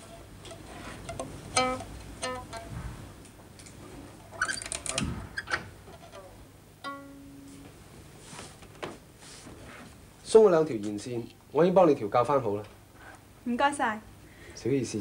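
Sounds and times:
plucked string instrument notes: 0:01.0 - 0:02.8, 0:06.1 - 0:07.8.

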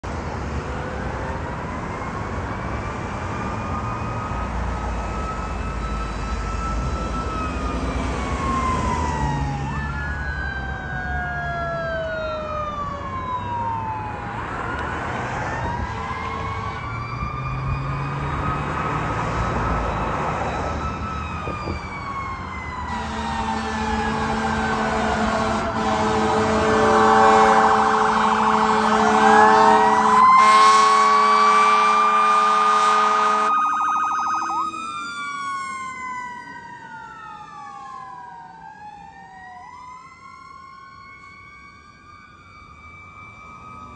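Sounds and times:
fire engine siren wailing: 0:00.0 - 0:43.9
road traffic rumbling: 0:00.0 - 0:43.9
second siren tone sweeping: 0:01.8 - 0:22.0, 0:22.6 - 0:41.8
horn blast: 0:22.9 - 0:33.6.

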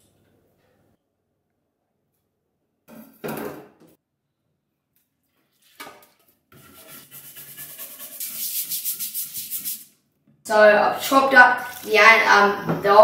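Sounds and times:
brush scrubbing wooden board: 0:06.6 - 0:09.9
tap water running: 0:11.1 - 0:13.0.

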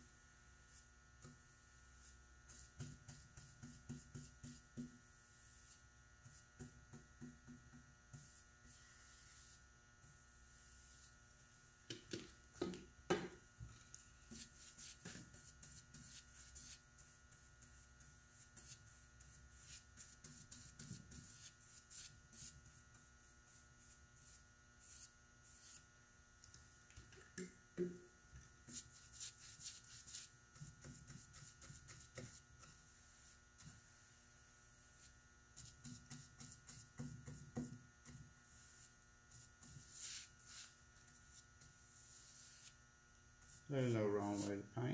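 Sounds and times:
steady low hum: 0:00.0 - 0:44.9
paintbrush swishing on wood: 0:08.1 - 0:11.2, 0:14.2 - 0:22.6, 0:34.9 - 0:42.8, 0:43.4 - 0:44.6.

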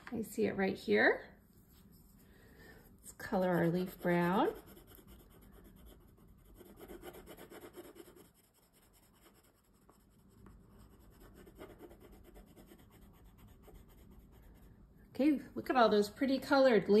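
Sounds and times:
pencil scratching on paper: 0:03.1 - 0:14.8.

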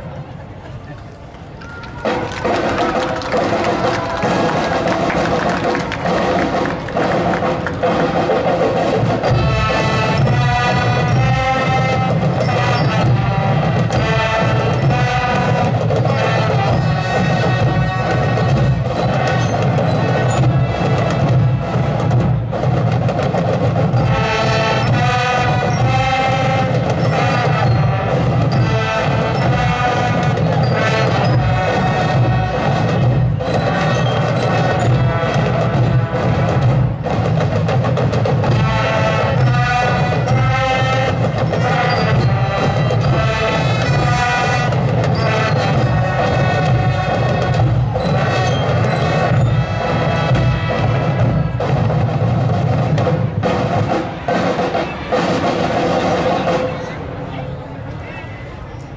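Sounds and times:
marching band playing: 0:00.0 - 0:58.9.

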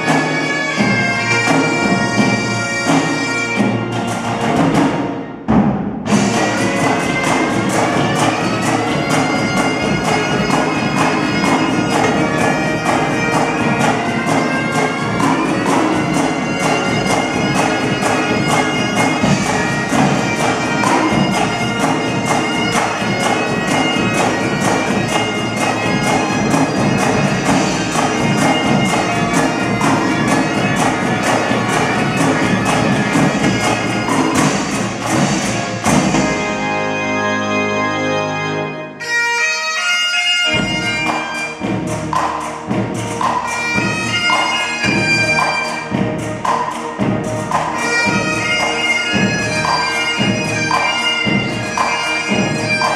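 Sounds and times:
bagpipes playing: 0:00.0 - 0:05.4, 0:06.1 - 0:52.9
snare drumming: 0:00.0 - 0:36.5, 0:40.5 - 0:52.9
pipe organ: 0:00.0 - 0:52.9
bass drum beats: 0:40.5 - 0:52.9.

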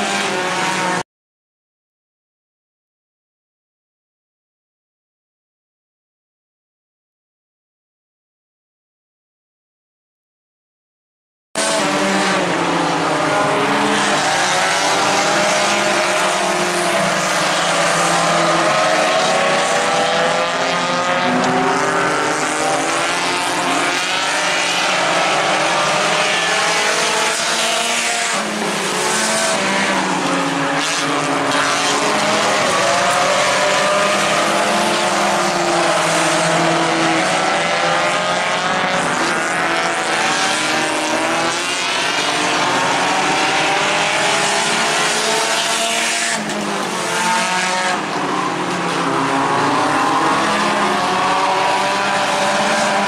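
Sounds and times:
race car engines passing by: 0:00.0 - 0:01.0, 0:11.6 - 0:53.0.

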